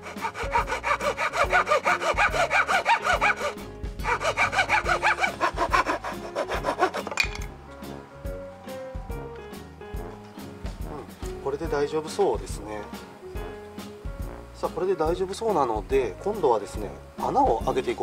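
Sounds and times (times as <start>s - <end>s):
hand saw cutting wood: 0.0s - 7.3s.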